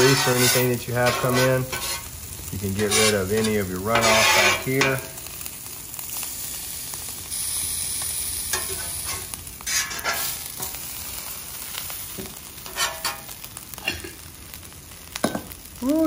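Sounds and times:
metal spatula scraping griddle: 0.0 - 5.2, 8.5 - 10.9, 12.6 - 13.4
sandwich sizzling on griddle: 0.0 - 16.0.

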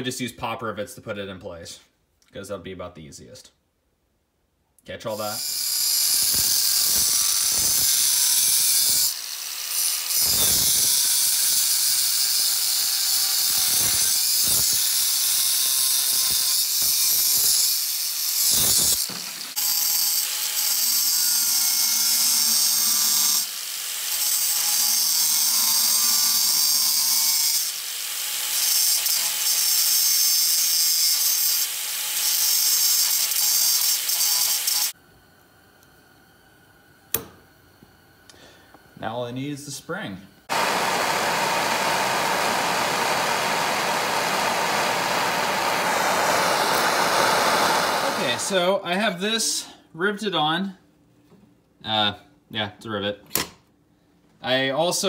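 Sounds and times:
angle grinder cutting steel: 5.1 - 35.0, 40.5 - 48.7.

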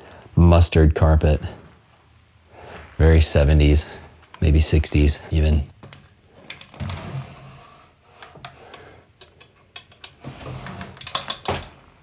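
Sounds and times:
wooden drawers scraping and knocking: 6.6 - 7.7, 9.9 - 11.8.

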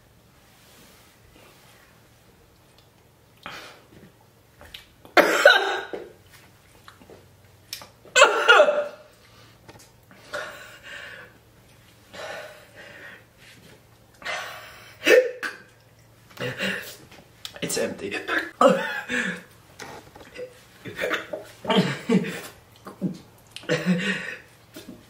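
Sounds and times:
man coughing: 5.2 - 6.0, 8.2 - 9.1, 14.3 - 15.6, 18.3 - 19.4, 20.4 - 22.5, 23.1 - 24.5
breathing: 9.2 - 11.4, 12.1 - 13.6.

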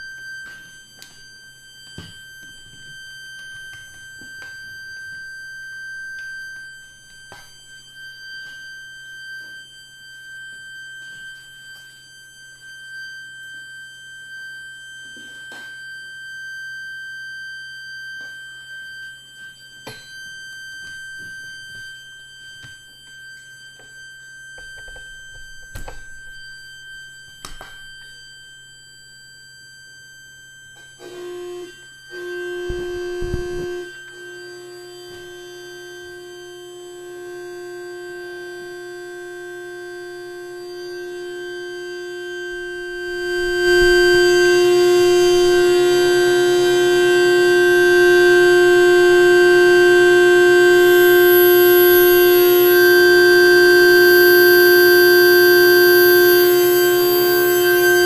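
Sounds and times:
high sine tone: 0.0 - 58.0
low electrical hum: 30.6 - 58.0.

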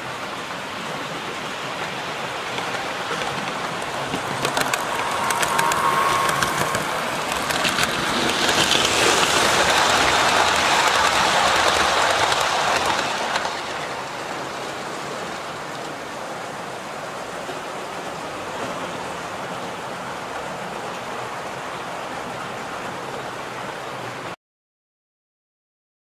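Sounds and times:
model train wheels rattling: 1.8 - 15.2.

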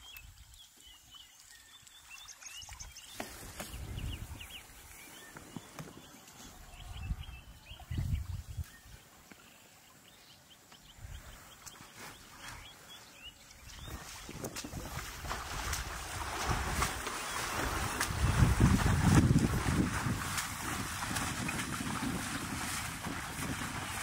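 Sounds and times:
birds chirping: 0.0 - 15.0, 16.8 - 19.4.

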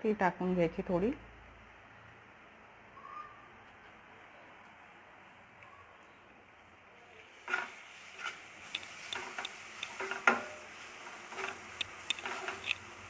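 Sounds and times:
steel spoon scraping a pan: 7.3 - 13.0.

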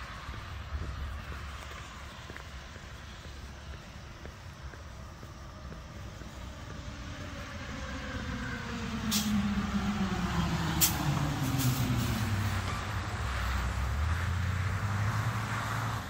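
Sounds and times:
vehicle engine approaching: 0.0 - 16.0
short sharp hisses: 9.1 - 9.4.

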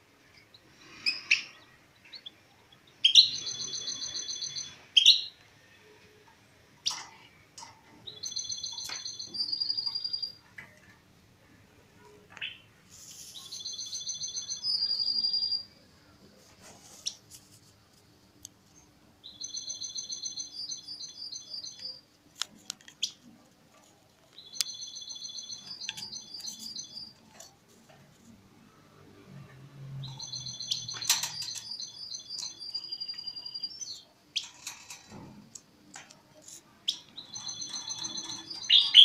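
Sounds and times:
songbird trilling: 30.1 - 34.0, 36.9 - 39.0.

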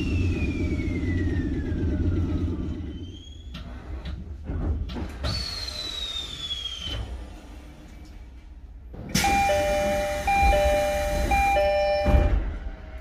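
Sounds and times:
train car rumble and whine: 0.0 - 13.0
sliding doors hiss of air: 5.0 - 8.4, 9.1 - 11.5
two-tone door chime: 9.2 - 12.5.

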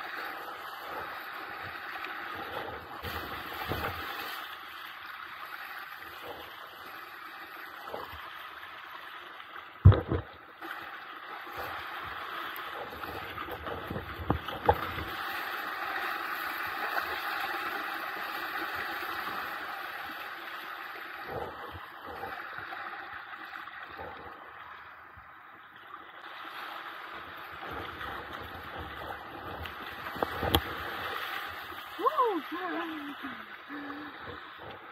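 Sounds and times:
paddle stroke splashes: 0.0 - 9.1
water rushing along kayak hull: 0.0 - 34.9.

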